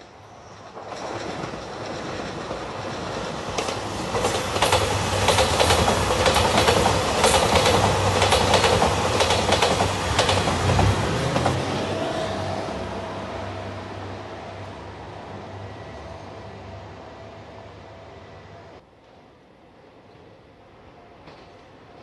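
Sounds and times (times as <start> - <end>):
train wheels clicking over rail joints: 0.6 - 11.6.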